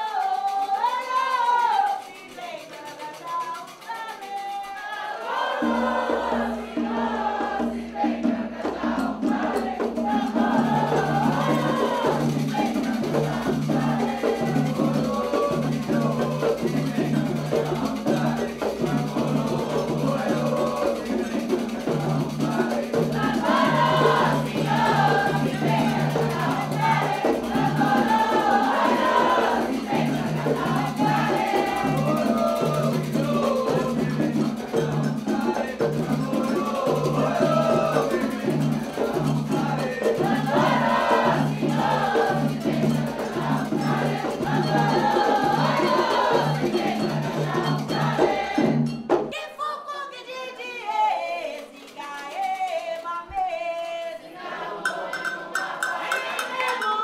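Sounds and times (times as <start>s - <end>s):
light clicking percussion: 0.0s - 5.0s, 54.9s - 57.0s
steady percussion beat: 0.0s - 49.4s, 54.8s - 57.0s
group of voices chanting: 4.9s - 48.6s, 54.2s - 57.0s.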